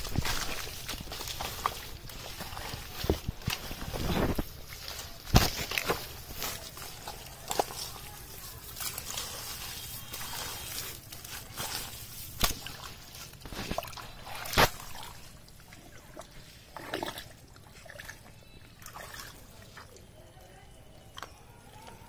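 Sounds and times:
hands squelching through wet mud: 0:00.0 - 0:20.2
water sloshing: 0:00.0 - 0:21.9
sharp smacks in mud: 0:05.3 - 0:06.0, 0:12.4 - 0:12.9, 0:13.5 - 0:14.9.

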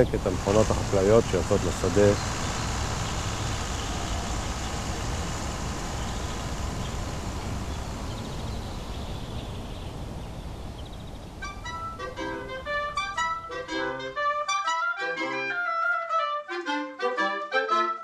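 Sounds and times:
tractor engine rumbling: 0:00.0 - 0:13.6
woodwind music: 0:11.4 - 0:18.0.

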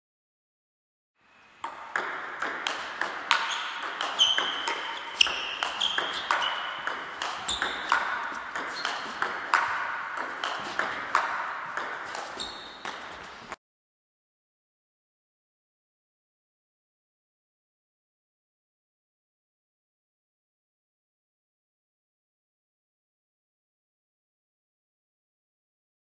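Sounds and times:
ball bouncing on table: 0:01.6 - 0:13.2
table tennis ball hits: 0:01.6 - 0:13.4.

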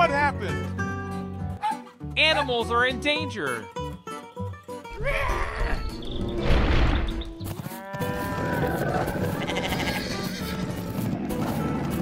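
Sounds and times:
background music: 0:00.0 - 0:12.0
cartoon farm animal cries: 0:04.9 - 0:06.0, 0:08.0 - 0:10.5.

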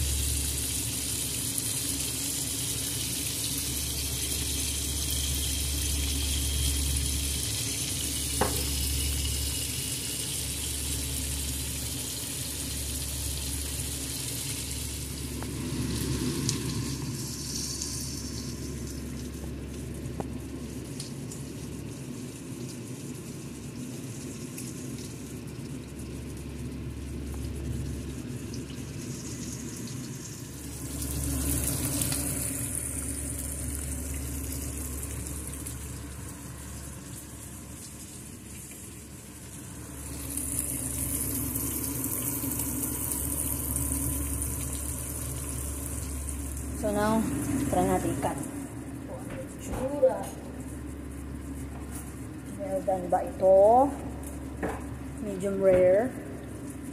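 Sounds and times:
steak sizzling in a pan: 0:00.2 - 0:19.0, 0:39.8 - 0:47.6.

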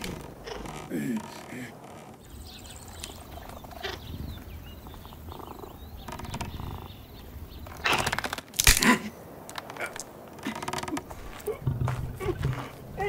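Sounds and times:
faint chirping: 0:00.3 - 0:08.1.

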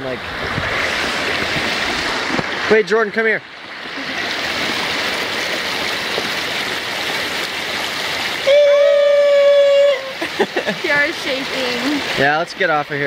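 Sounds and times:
river rushing: 0:00.0 - 0:13.0
person holding long aah: 0:08.4 - 0:10.4.

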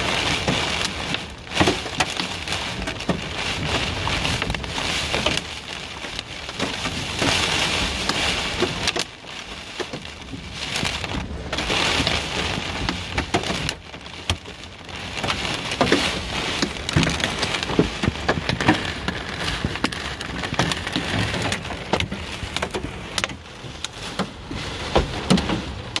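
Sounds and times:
hail knocking on car: 0:00.0 - 0:26.0
heavy rain on car roof: 0:00.0 - 0:26.0.

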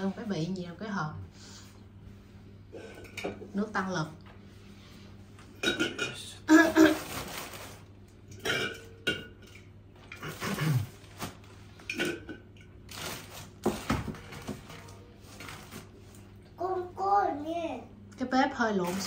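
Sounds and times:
cans and jars clinking: 0:05.6 - 0:06.3
plastic bag rustling: 0:06.5 - 0:08.1, 0:10.3 - 0:11.8, 0:12.8 - 0:16.3.

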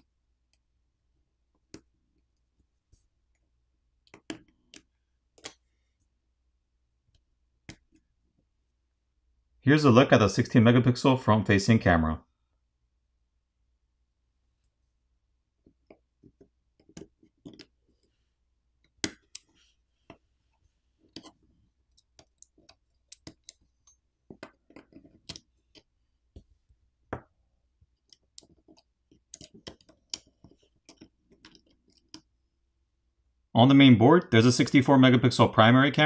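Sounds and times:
small clicks and taps of metal tool: 0:21.1 - 0:26.5, 0:28.0 - 0:32.3.

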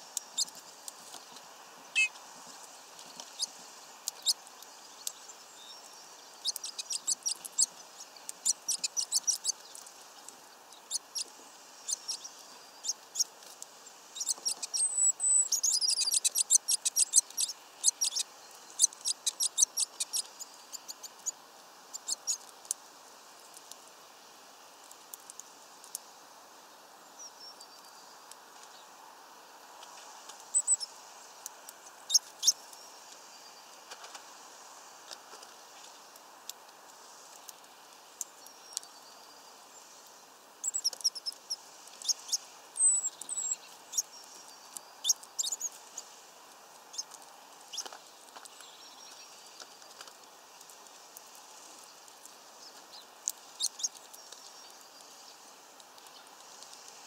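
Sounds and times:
birds pecking seeds on wood: 0:00.1 - 0:26.6, 0:27.6 - 0:57.0
short high bird chirps: 0:01.9 - 0:02.2, 0:14.2 - 0:18.2.

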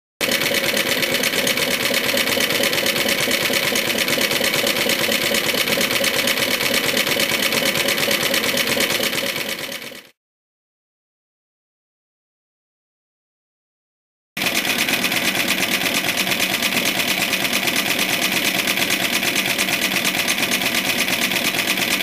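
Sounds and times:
small mower engine running: 0:00.2 - 0:10.2, 0:14.4 - 0:22.0.

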